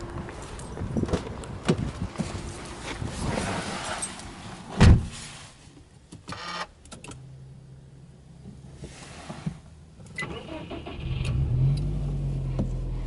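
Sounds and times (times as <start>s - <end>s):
car door shutting: 4.7s - 5.2s.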